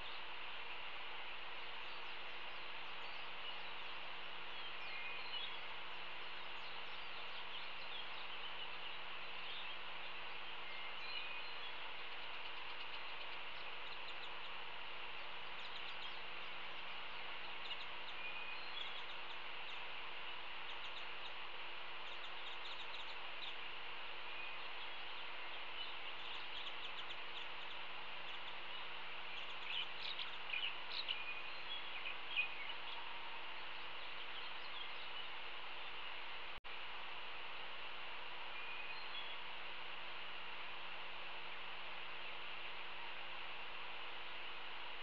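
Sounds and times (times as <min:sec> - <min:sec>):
outdoor background hiss: 0:00.0 - 0:45.0
bird chirps: 0:01.7 - 0:19.9, 0:20.6 - 0:21.4, 0:22.0 - 0:23.7, 0:24.3 - 0:36.0.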